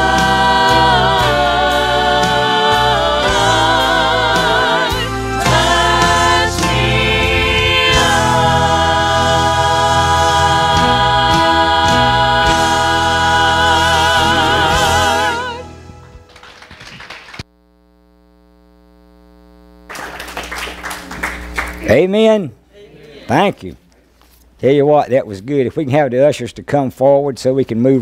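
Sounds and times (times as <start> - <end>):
vocal trio singing in harmony: 0.0 - 16.2
instrumental accompaniment: 0.0 - 16.7
faint steady hum: 17.5 - 24.6.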